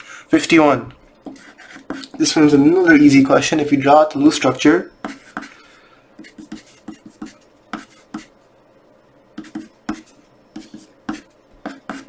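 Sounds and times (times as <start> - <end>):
pencil writing on paper: 1.2 - 2.2, 5.0 - 5.6, 6.2 - 8.4, 9.4 - 12.0.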